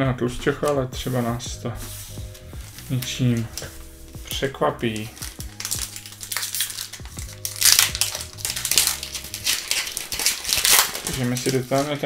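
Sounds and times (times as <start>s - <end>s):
foil wrapper crinkling and tearing: 2.1s - 12.0s.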